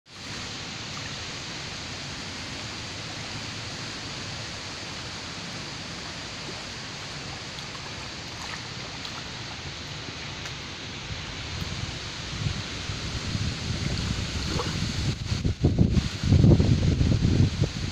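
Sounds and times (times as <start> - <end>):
small waves washing on shore: 0.1 - 17.9
wind over water: 0.1 - 17.9.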